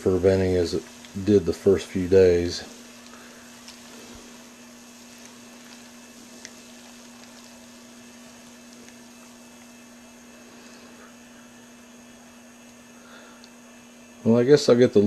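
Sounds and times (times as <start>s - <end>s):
steady low hum: 0.0s - 15.0s
small bubbles popping: 5.1s - 9.8s.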